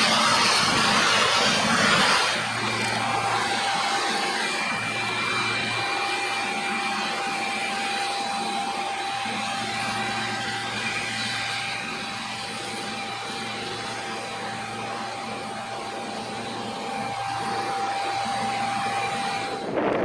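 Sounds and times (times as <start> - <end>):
combine harvester drone and whine: 0.0 - 20.0
wind buffeting microphone: 19.4 - 20.0.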